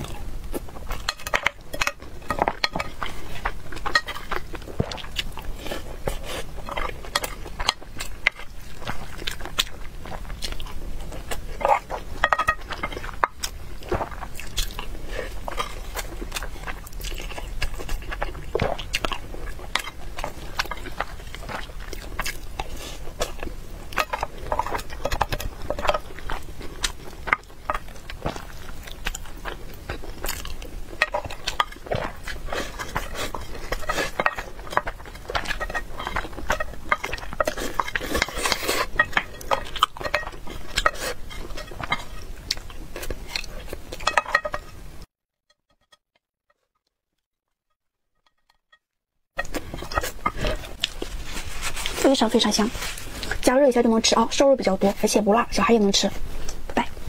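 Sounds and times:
wet chewing: 0.0 - 45.0, 49.4 - 57.0
wooden spoon scraping glass bowl: 49.4 - 53.5.

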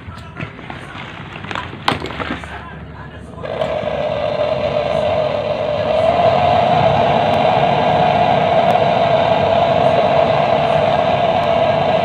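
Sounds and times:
gas torch hissing: 3.3 - 12.0.

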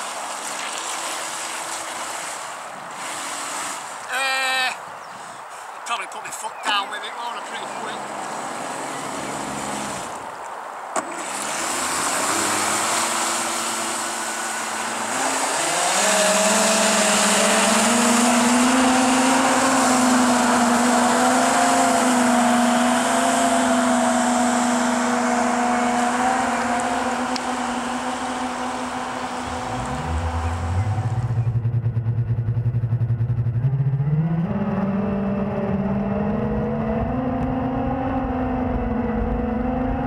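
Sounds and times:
water hissing from jet: 0.0 - 4.1, 11.0 - 20.8
electric motor and impeller whine: 11.0 - 40.0.

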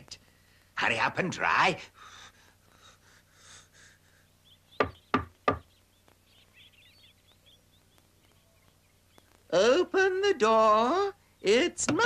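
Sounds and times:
knocks on wooden door: 4.8 - 5.6.

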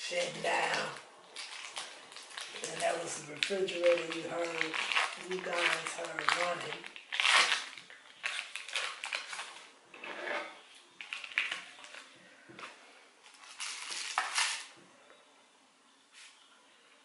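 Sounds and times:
foil wrapper crinkling: 0.0 - 9.7, 11.0 - 12.2, 13.2 - 14.8
knife scraping plastic container: 10.0 - 10.6.

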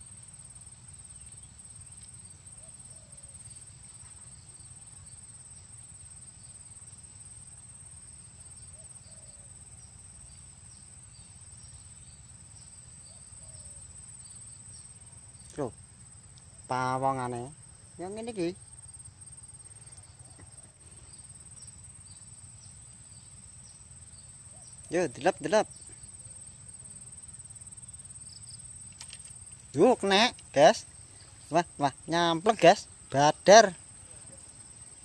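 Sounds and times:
crickets trilling: 0.0 - 35.0.

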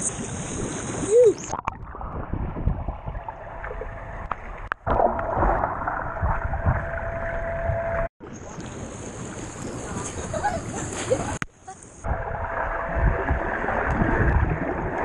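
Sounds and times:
water rushing and bubbling: 0.0 - 10.1, 12.0 - 15.0
low thumps of swimming strokes: 1.7 - 8.1, 12.1 - 15.0
faint steady tone: 6.2 - 8.1.

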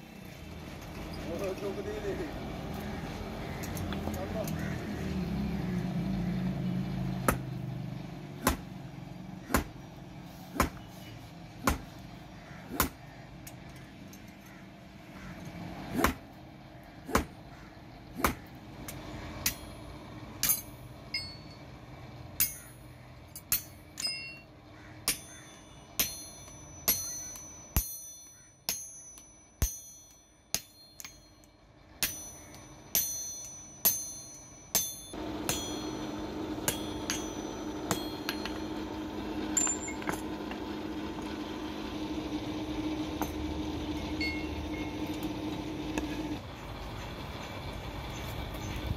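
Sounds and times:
hammer striking hot steel on anvil: 8.4 - 8.7, 9.5 - 9.8, 18.2 - 21.6, 22.4 - 40.6, 43.2 - 43.4, 44.0 - 45.2.

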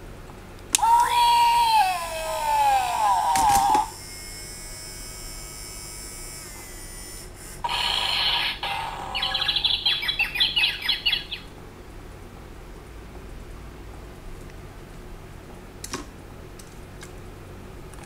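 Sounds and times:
toy speaker hiss: 0.8 - 10.6
rapid high electronic chirps: 7.6 - 11.5.

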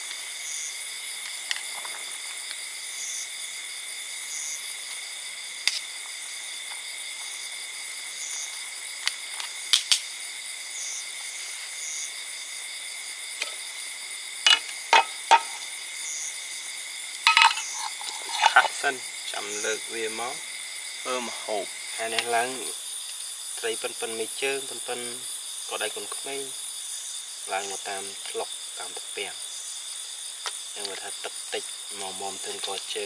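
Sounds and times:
forest insects droning: 0.0 - 33.0
sharp knocks: 14.5 - 15.6.

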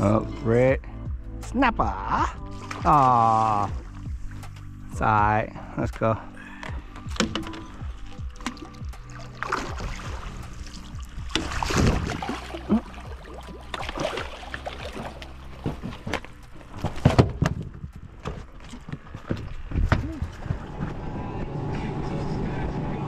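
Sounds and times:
fish splashing and thrashing: 2.4 - 4.6, 6.4 - 20.9.

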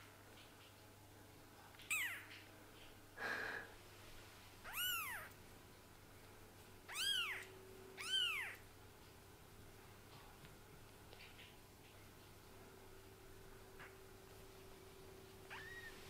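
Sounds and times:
kitten mewing: 1.8 - 2.3, 4.6 - 5.3, 6.9 - 8.6, 15.5 - 16.0.

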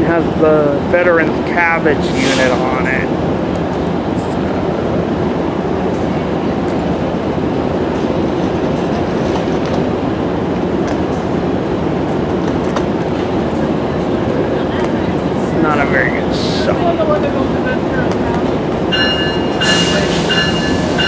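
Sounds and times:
diesel locomotive idling rumble: 9.9 - 21.0.

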